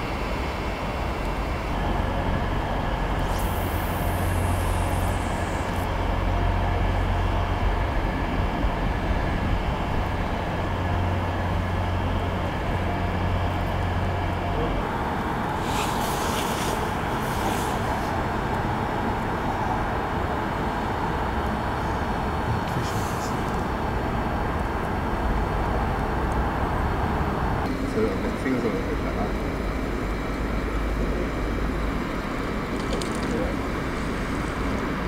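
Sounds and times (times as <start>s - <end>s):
road traffic rumble: 0.0s - 35.0s
short falling hiss: 15.6s - 18.2s, 22.7s - 23.4s.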